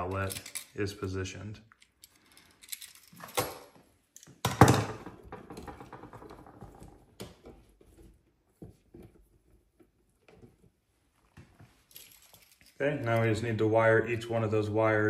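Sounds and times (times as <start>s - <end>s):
wires clicking and scraping: 1.6s - 4.4s, 8.9s - 13.6s.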